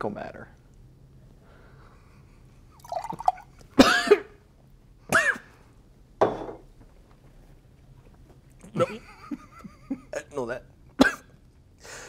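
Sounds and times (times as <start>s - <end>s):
man coughing and gagging: 2.9s - 4.4s, 5.1s - 5.5s, 11.0s - 11.4s.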